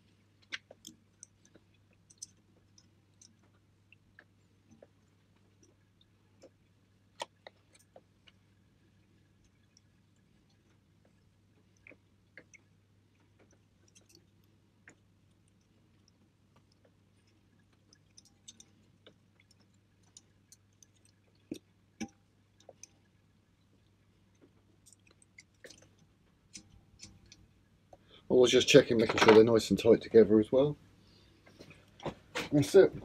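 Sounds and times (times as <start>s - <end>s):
low steady hum: 0.0s - 33.0s.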